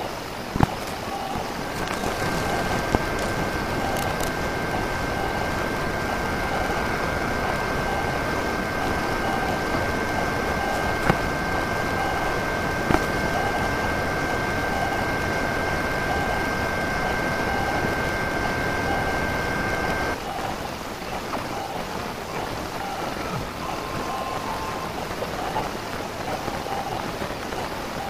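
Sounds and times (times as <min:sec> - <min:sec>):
printer running hiss: 0:00.0 - 0:28.0
high two-note whine: 0:01.7 - 0:20.2.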